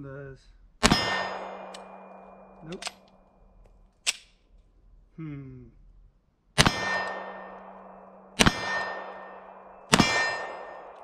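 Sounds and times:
steel targets ringing: 0:00.8 - 0:02.7, 0:06.6 - 0:11.0
pistol shots: 0:00.8 - 0:03.1, 0:06.6 - 0:11.0.

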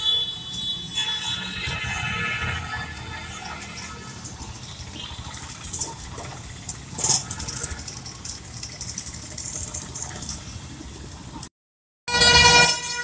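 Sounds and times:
motorcycle and car engines passing: 0:01.4 - 0:11.4.

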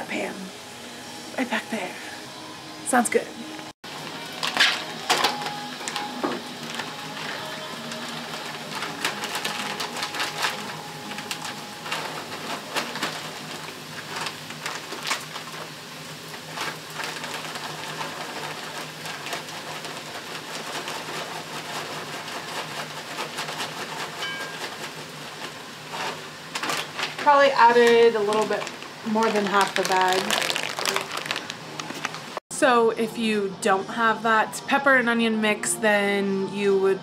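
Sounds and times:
onions sizzling in a skillet: 0:03.9 - 0:32.4.

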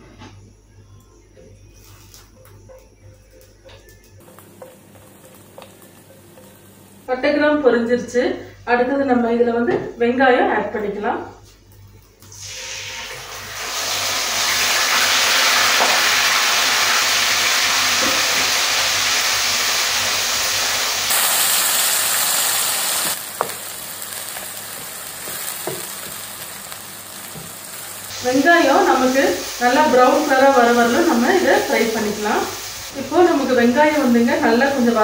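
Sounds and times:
onion paste sizzling in oil: 0:12.3 - 0:35.0.

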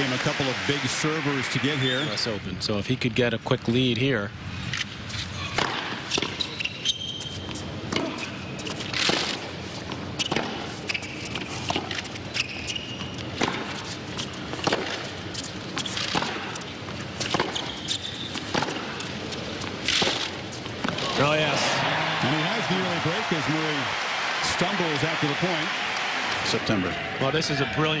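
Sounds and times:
tennis shoes squeaking on court: 0:04.6 - 0:21.0
tennis balls struck by racquets: 0:05.5 - 0:06.6, 0:07.5 - 0:09.5, 0:10.2 - 0:11.0, 0:13.3 - 0:15.2, 0:15.8 - 0:21.5.

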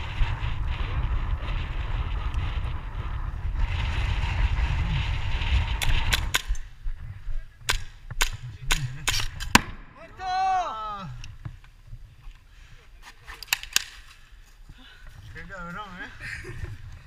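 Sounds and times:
wind buffeting microphone: 0:00.0 - 0:12.8, 0:14.6 - 0:17.0
airsoft pistol shots: 0:07.7 - 0:09.9.

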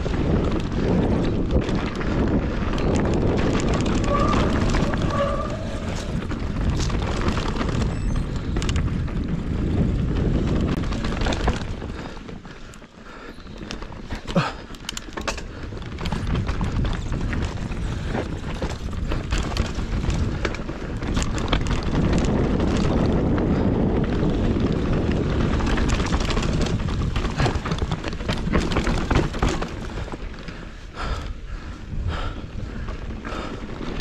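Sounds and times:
bike clicks and rattles: 0:00.0 - 0:34.0
tyre and wind noise: 0:00.0 - 0:34.0.

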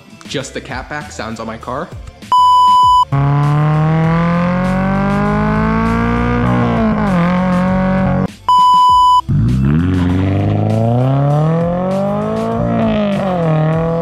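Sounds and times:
short electronic beep: 0:02.3 - 0:03.1, 0:08.4 - 0:09.3
car exhaust accelerating: 0:03.0 - 0:08.3, 0:09.2 - 0:14.0.

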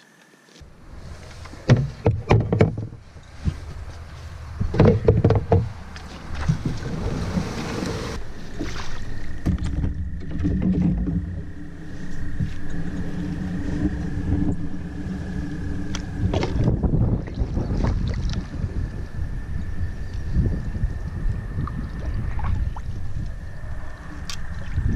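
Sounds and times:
water noise from canoe: 0:00.6 - 0:24.9
wind on microphone: 0:00.6 - 0:24.9.

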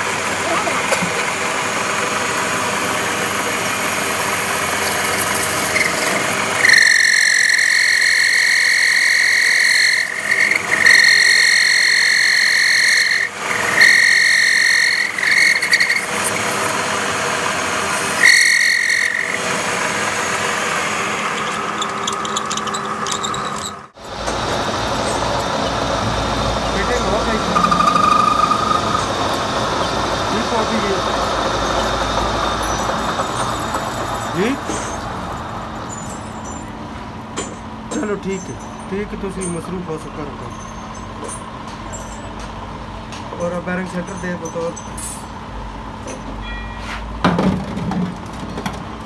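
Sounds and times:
metal lathe running: 0:00.0 - 0:35.8
high-pitched squeal of cutting tool: 0:04.7 - 0:16.8, 0:17.8 - 0:23.9, 0:26.6 - 0:31.0.

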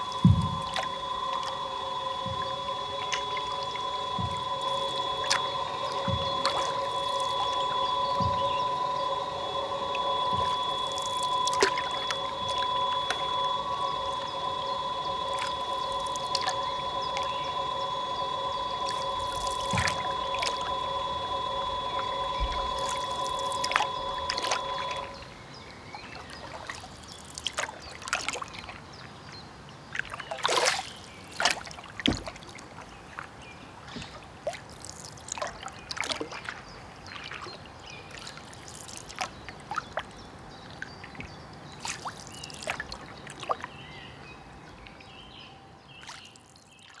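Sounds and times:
short falling pitch glides: 0:00.0 - 0:25.4
held chord of steady tones: 0:00.0 - 0:25.6
drip-like clicks and crackles: 0:26.1 - 0:28.8, 0:33.9 - 0:43.7.

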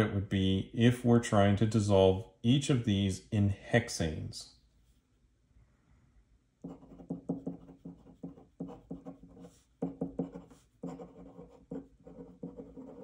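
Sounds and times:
pen scratching on paper: 0:06.6 - 0:13.0.

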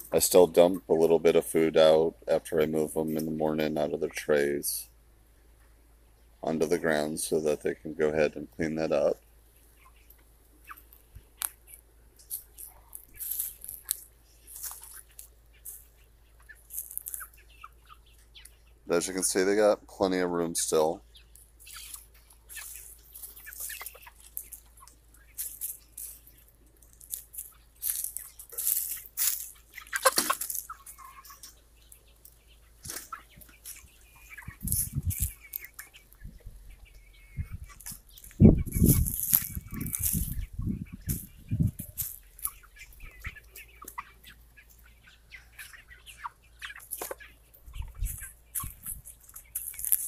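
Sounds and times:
chickens clucking and calling: 0:00.0 - 0:50.0
rustling and crunching: 0:09.8 - 0:19.4, 0:20.6 - 0:50.0.

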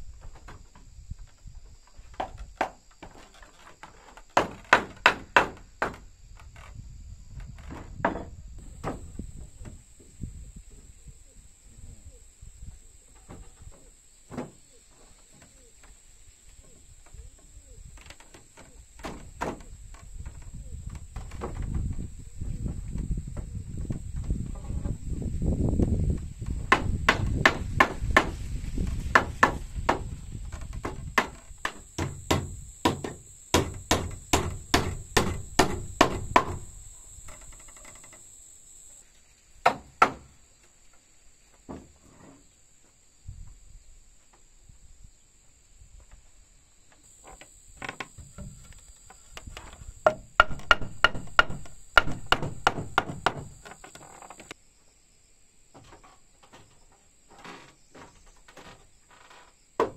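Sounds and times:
hammer striking timber: 0:04.4 - 0:06.0, 0:26.6 - 0:28.5, 0:29.1 - 0:30.2, 0:30.8 - 0:36.8, 0:39.6 - 0:40.3, 0:50.0 - 0:53.7.

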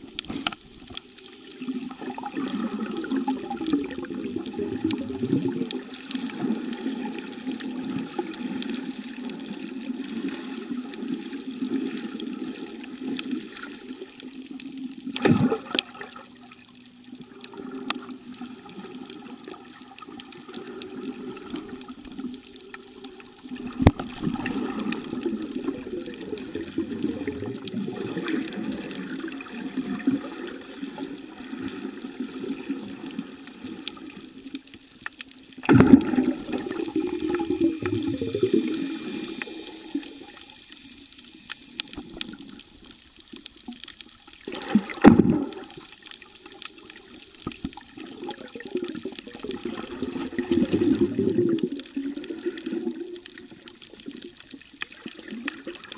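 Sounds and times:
muffled underwater rushing: 0:00.0 - 0:34.5, 0:35.4 - 0:55.9.

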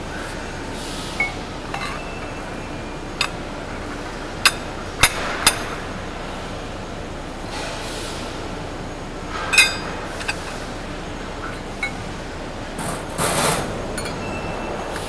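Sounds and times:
steady background noise: 0:00.0 - 0:15.0
metal rings clinking: 0:09.5 - 0:10.6.

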